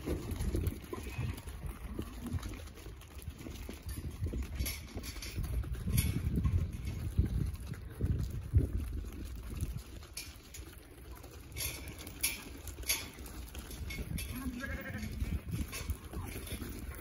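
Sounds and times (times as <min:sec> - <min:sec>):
hooves scuffing on dirt: 0:00.0 - 0:17.0
lamb bleating: 0:14.3 - 0:15.3.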